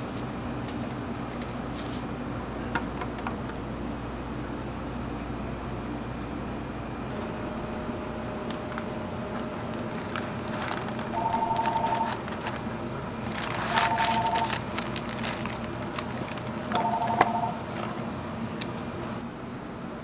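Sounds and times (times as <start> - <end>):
paper wrapping rustling: 8.3 - 18.0.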